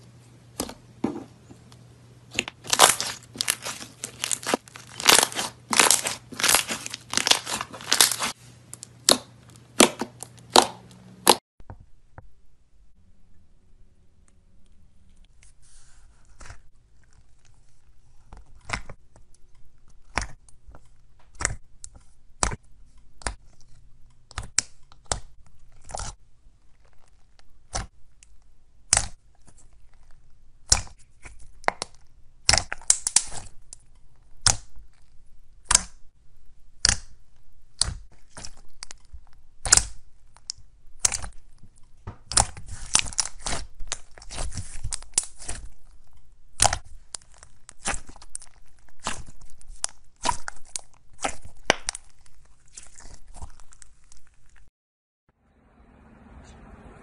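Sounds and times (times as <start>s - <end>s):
slime popping and crackling: 2.3s - 11.4s, 30.6s - 36.0s, 36.8s - 54.7s.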